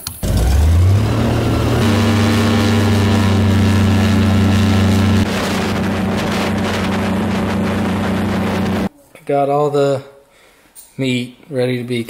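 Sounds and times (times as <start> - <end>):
airboat engine droning: 0.2 - 8.9.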